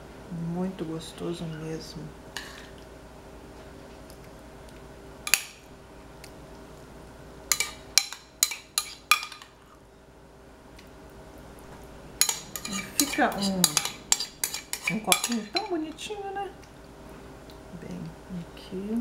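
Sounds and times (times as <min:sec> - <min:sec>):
spoon clinking against dishes: 0:07.5 - 0:09.6, 0:12.2 - 0:15.8.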